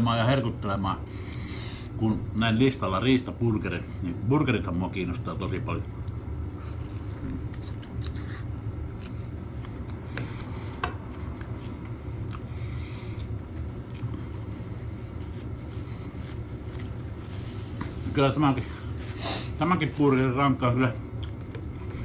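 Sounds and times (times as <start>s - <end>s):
low hum: 0.0s - 22.0s
chewing clicks and scrapes: 6.0s - 12.5s, 13.1s - 17.0s
paper napkin rustling: 14.4s - 20.7s.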